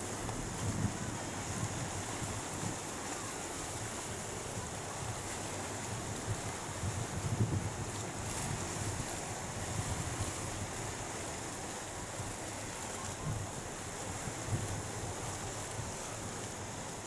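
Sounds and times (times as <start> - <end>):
surf washing against rocks: 0.0 - 17.0
wind buffeting microphone: 0.2 - 2.8, 6.1 - 10.9.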